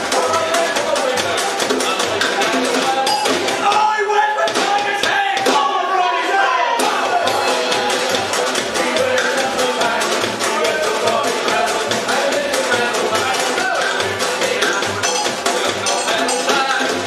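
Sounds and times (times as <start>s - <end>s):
snare drum beat: 0.0s - 17.0s
double bass: 6.7s - 17.0s.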